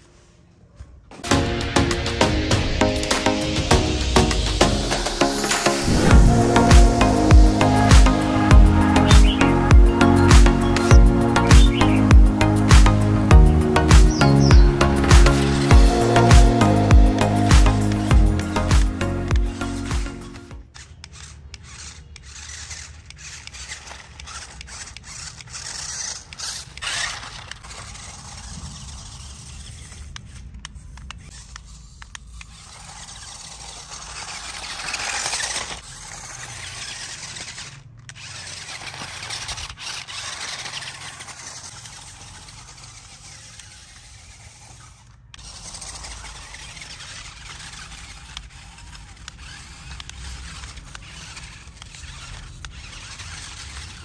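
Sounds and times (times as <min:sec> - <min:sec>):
remote-control car motor whirring: 0:02.6 - 0:54.0.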